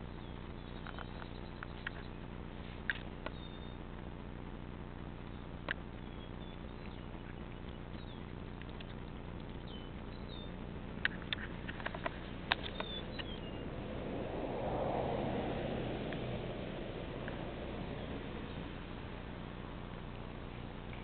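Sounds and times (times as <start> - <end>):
faint high chirps: 0.0 - 2.3, 3.2 - 3.9, 5.2 - 11.4, 12.6 - 13.7
steady low hum: 0.0 - 21.0
soft rustling in grass: 1.1 - 4.1, 5.9 - 13.8.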